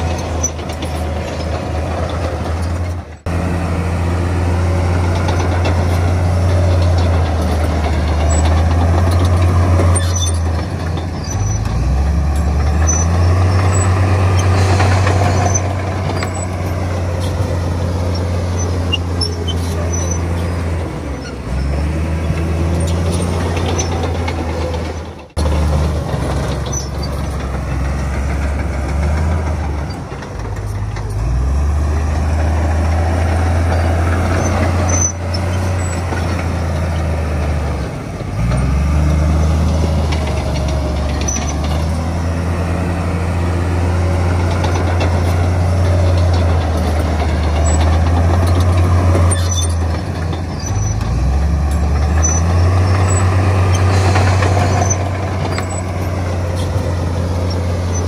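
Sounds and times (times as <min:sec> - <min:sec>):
heavy diesel engine under load: 0:00.0 - 0:58.0.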